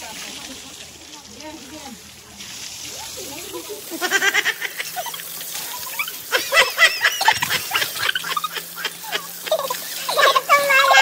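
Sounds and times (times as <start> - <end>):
women laughing: 3.2 - 11.0.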